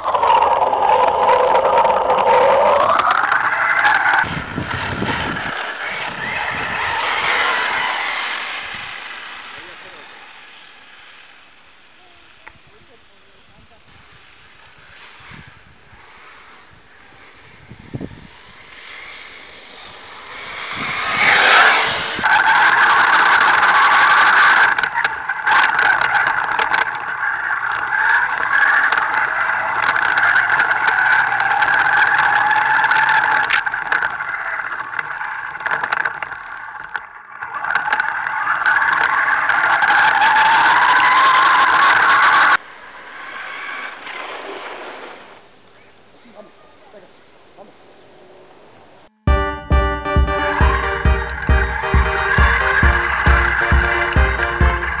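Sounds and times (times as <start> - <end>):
rc buggy motor revving high: 0.0 - 46.5, 52.2 - 55.0
clicks and crackles from dirt: 23.3 - 40.3.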